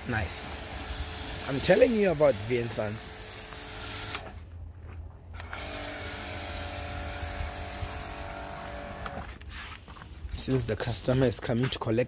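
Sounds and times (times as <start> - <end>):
pressure washer motor hum: 0.0 - 4.4, 5.4 - 9.3
pressure washer spray hissing: 0.1 - 4.2.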